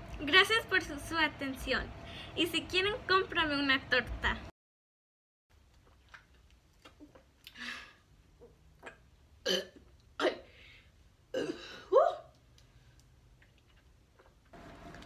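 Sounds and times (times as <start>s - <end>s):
girl burping: 8.8s - 10.5s, 11.3s - 12.2s.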